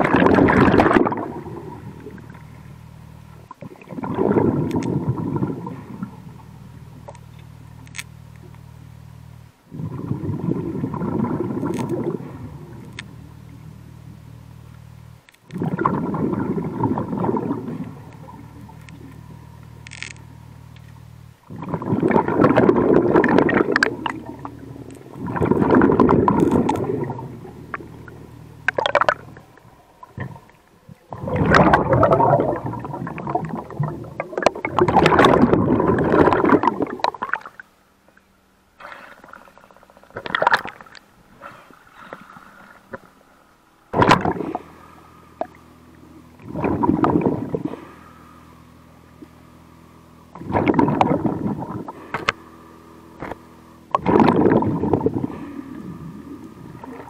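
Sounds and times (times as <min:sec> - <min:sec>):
exhaled bubbles underwater: 0:00.0 - 0:07.3, 0:09.7 - 0:14.2, 0:15.5 - 0:20.4, 0:21.4 - 0:41.1, 0:43.9 - 0:48.2, 0:50.3 - 0:52.4, 0:53.2 - 0:57.0
steady low hum: 0:00.0 - 0:57.0.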